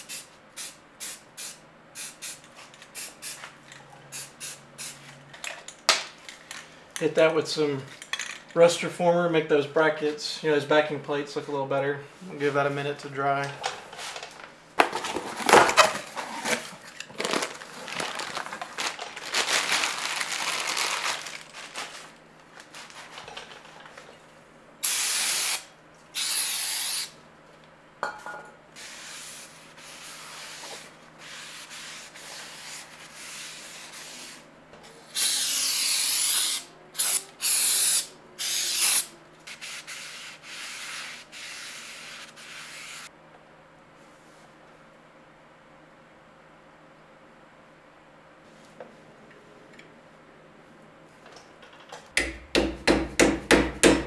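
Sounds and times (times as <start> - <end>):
cardboard box rustling: 14.8 - 23.1
aerosol can spraying: 24.8 - 25.6, 26.2 - 27.1, 35.2 - 43.1.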